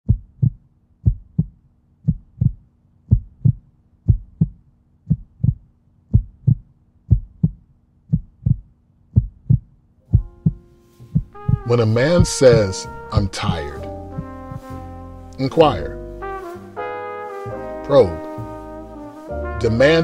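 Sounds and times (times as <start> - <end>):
heartbeat thumps: 0.1 - 14.9.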